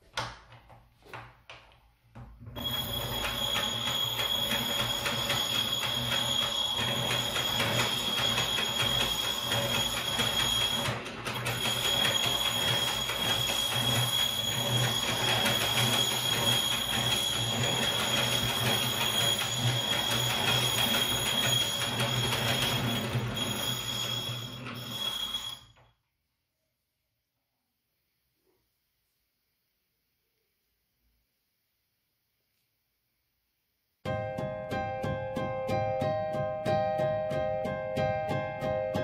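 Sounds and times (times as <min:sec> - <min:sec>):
hand-cranked grinder whirring: 0:02.6 - 0:25.8.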